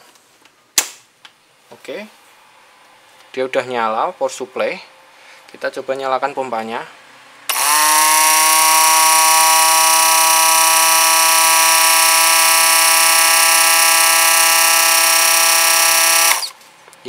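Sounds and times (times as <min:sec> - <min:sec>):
electric pump motor whine: 0:07.5 - 0:16.6.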